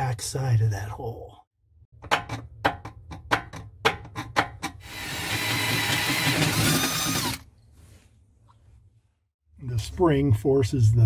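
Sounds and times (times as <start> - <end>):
power drill running: 4.8 - 7.4.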